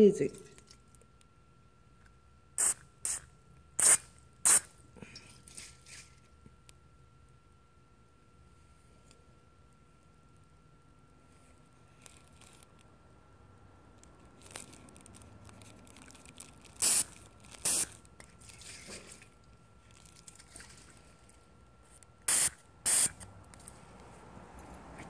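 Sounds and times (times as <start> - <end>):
aerosol spray hissing: 2.6 - 3.2, 3.8 - 4.7, 16.8 - 17.0, 17.6 - 17.9, 22.3 - 23.1.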